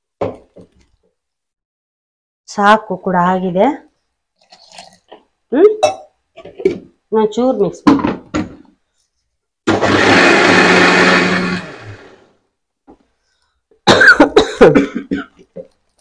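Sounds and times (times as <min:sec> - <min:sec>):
mixer grinder grinding: 0:09.7 - 0:12.3.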